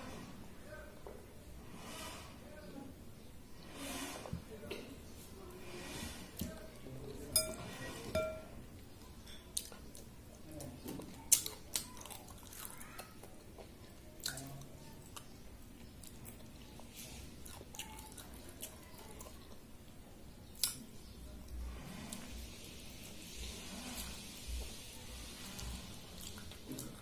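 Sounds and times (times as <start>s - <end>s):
person chewing wet mouth sounds: 9.6s - 19.6s.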